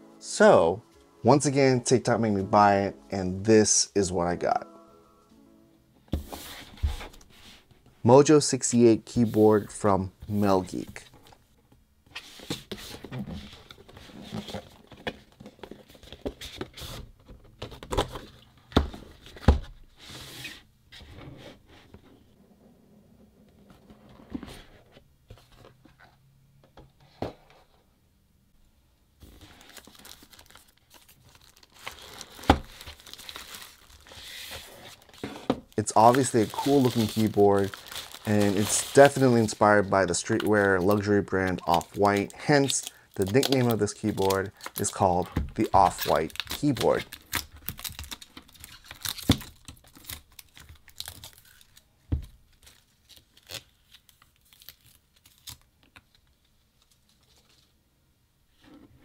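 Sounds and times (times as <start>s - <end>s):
plastic bag crinkling: 29.5s - 45.0s.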